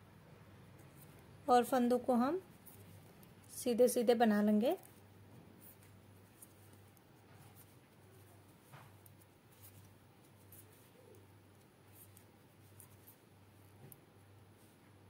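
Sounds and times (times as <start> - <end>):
low steady hum: 0.0 - 15.0
knitting needles clicking: 9.0 - 14.0.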